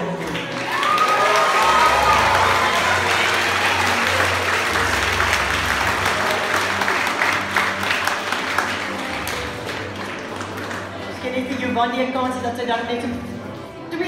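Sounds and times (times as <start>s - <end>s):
crowd of children applauding: 0.0s - 11.2s.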